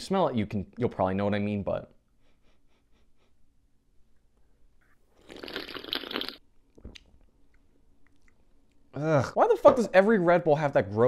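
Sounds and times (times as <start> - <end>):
loud slurp of drink: 5.2 - 6.4.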